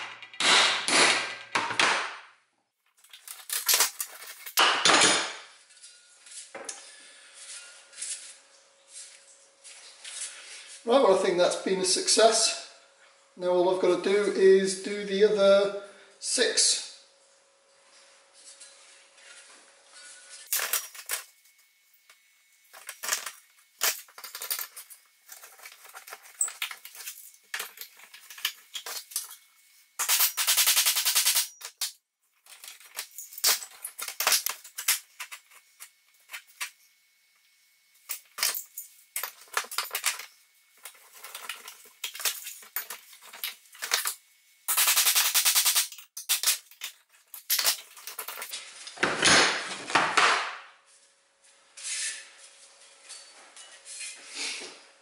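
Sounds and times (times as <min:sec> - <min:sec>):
hammer striking metal: 0:00.0 - 0:02.2.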